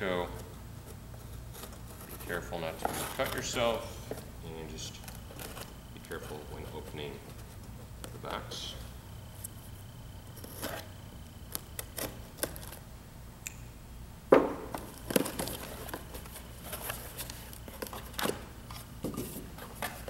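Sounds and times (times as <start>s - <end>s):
scrapes and rustles: 0.2s - 9.7s, 14.8s - 20.0s.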